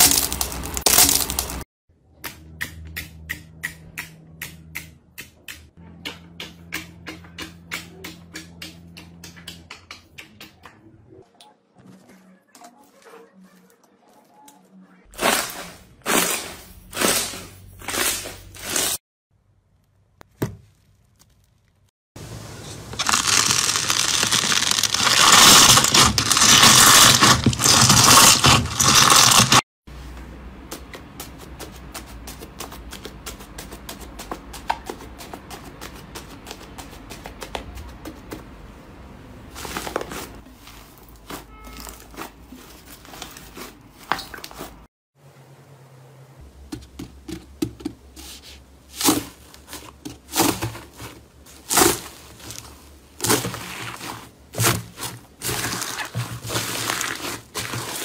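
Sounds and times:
slime squelching: 22.9 - 29.6, 48.2 - 58.0.

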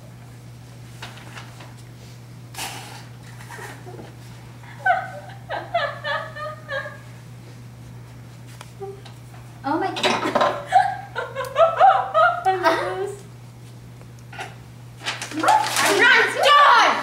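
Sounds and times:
girl giggling: 4.7 - 7.1, 10.6 - 13.2.

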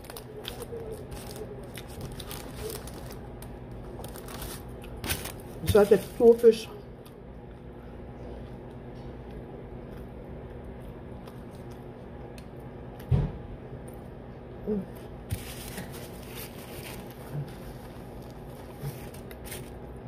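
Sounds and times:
steady low hum: 0.0 - 20.0
paper napkin rustling: 4.0 - 6.5, 15.3 - 19.8
faint chewing: 7.0 - 13.1
handling noises: 15.3 - 19.8.

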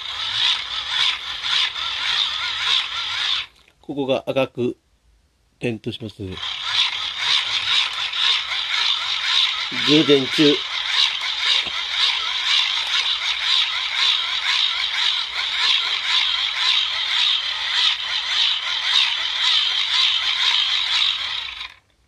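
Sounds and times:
hand-crank generator whirring: 0.0 - 3.8, 6.3 - 22.0.

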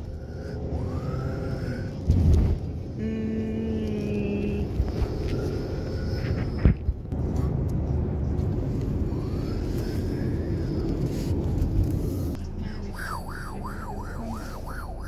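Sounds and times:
road and engine rumble inside car: 0.0 - 15.0.

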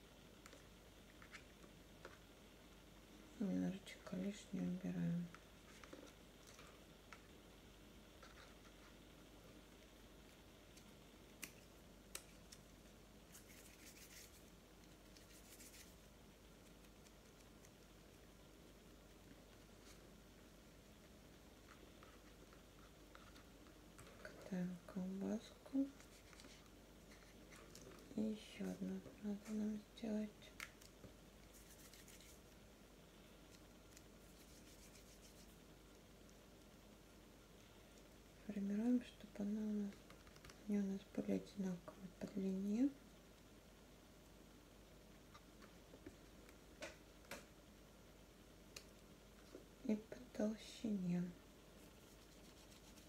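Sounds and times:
fingers rustling plasticine: 8.1 - 18.4, 25.1 - 36.8, 51.7 - 53.0.

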